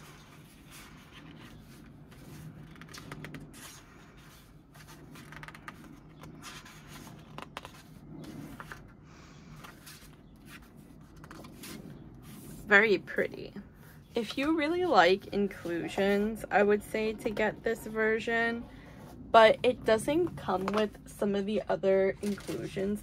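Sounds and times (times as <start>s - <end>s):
pages turning and rustling: 0.0s - 12.7s, 22.2s - 22.9s.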